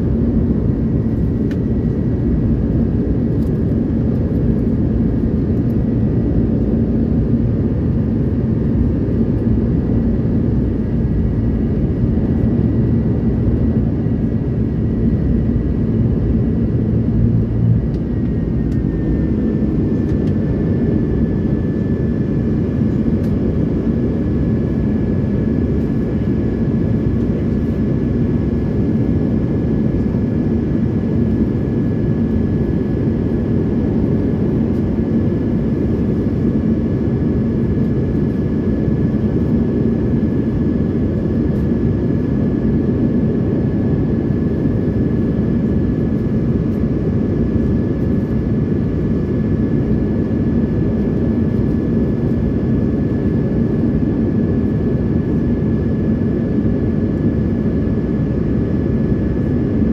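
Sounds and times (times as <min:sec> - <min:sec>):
jet engines roaring: 0:00.0 - 0:31.0.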